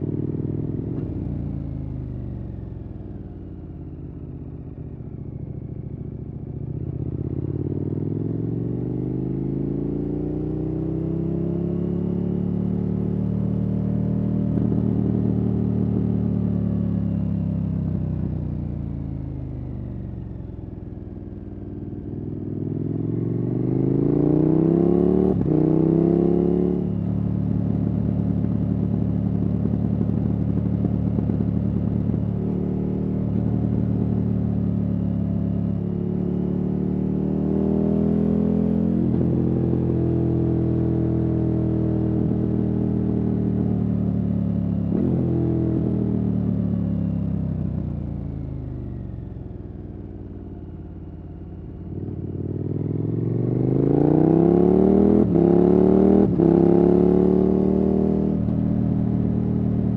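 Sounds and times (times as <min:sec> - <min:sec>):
motorcycle engine revving: 0:22.4 - 0:27.0, 0:51.8 - 0:59.9.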